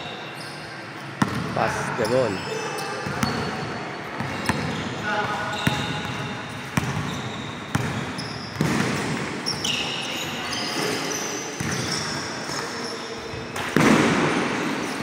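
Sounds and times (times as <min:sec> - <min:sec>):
sneaker squeaks: 0:00.0 - 0:15.0
basketball bouncing on gym floor: 0:01.2 - 0:01.6, 0:03.0 - 0:03.5, 0:04.2 - 0:09.8, 0:11.6 - 0:12.6.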